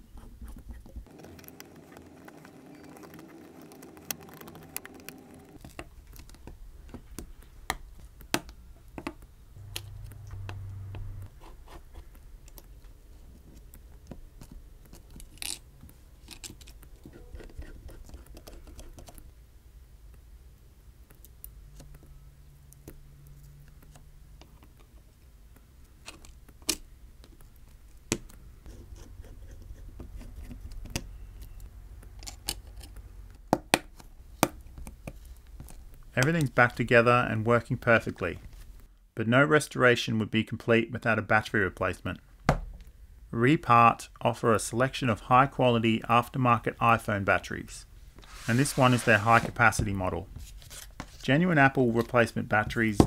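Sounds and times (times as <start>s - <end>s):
brief low hum: 9.6s - 11.3s.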